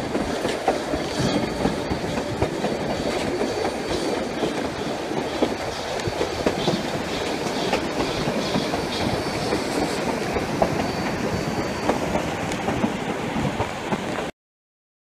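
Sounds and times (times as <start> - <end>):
wheels clicking over rail joints: 0.0 - 14.2
train rumbling on track: 0.0 - 14.3
high wheel squeal: 0.7 - 12.7.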